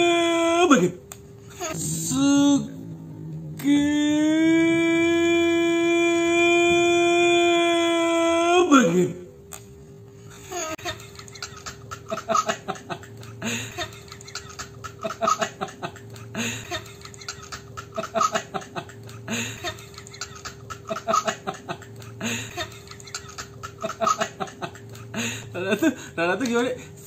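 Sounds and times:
faint hum: 0.0s - 27.0s
laughter: 10.6s - 26.0s.

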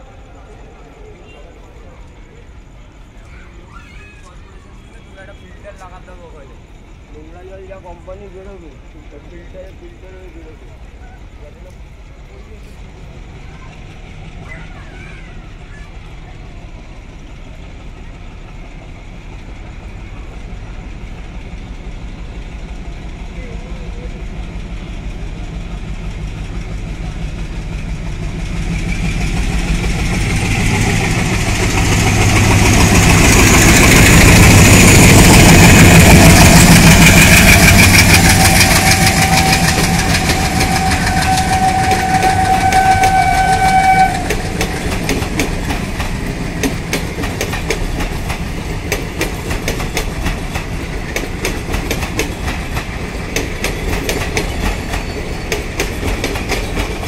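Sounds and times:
diesel locomotive engine chugging: 0.0s - 57.0s
train wheels clickety-clack: 7.4s - 57.0s
train horn: 38.1s - 44.8s.

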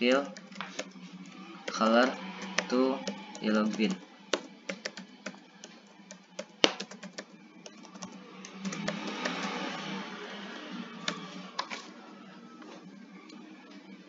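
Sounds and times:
computer keyboard typing: 0.0s - 9.8s, 11.0s - 11.7s.

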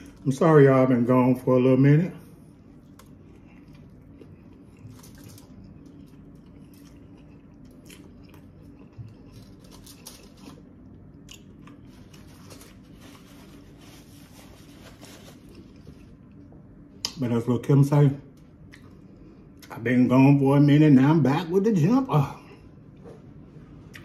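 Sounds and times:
close chewing with crunches: 2.7s - 13.6s.

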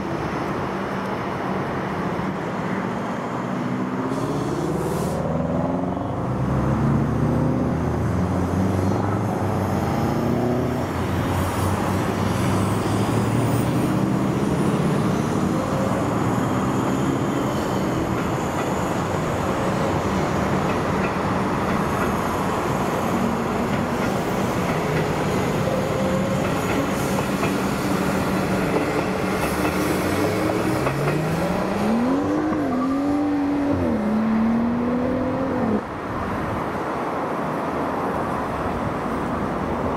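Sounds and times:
train wheels rumbling on rail: 7.7s - 34.8s
wavering whining tone: 31.4s - 35.8s.

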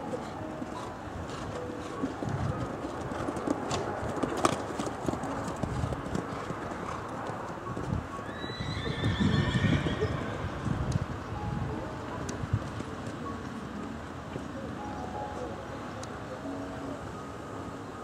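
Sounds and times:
muffled hoofbeats on sand: 0.1s - 8.1s
horse whinnying: 8.2s - 10.6s.

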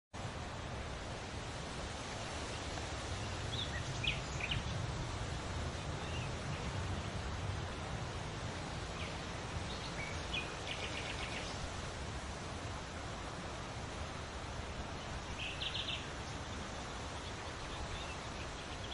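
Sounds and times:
steady hiss with low rumble: 0.2s - 18.9s
small birds chirping: 2.4s - 5.0s, 5.7s - 11.8s, 14.8s - 18.9s.

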